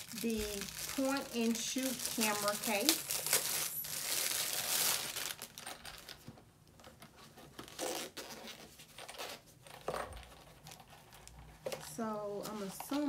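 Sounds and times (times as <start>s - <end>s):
packaging tearing: 0.0s - 6.2s, 7.6s - 9.4s
packaging rustling and crinkling: 0.0s - 13.0s.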